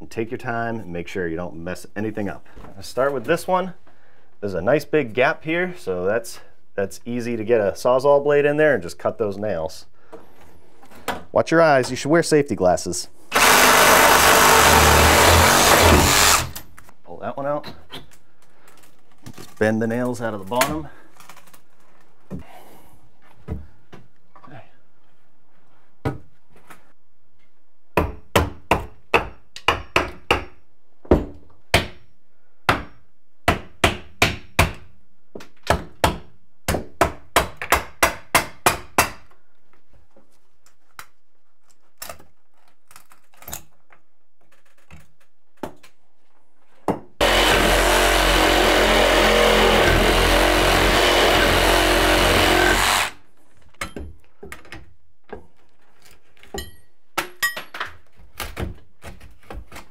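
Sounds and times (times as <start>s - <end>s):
power tool running: 13.3s - 16.6s, 47.2s - 53.2s
hammer blows on wooden studs: 46.9s - 53.1s.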